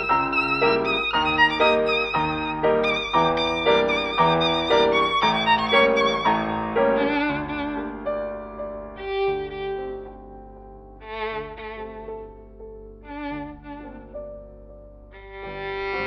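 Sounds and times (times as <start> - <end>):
violin melody with vibrato: 0.0 - 14.5, 15.1 - 16.0.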